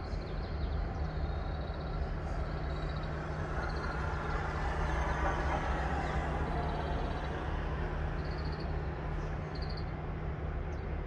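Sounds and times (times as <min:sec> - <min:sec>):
outdoor rumble and hiss: 0:00.0 - 0:11.0.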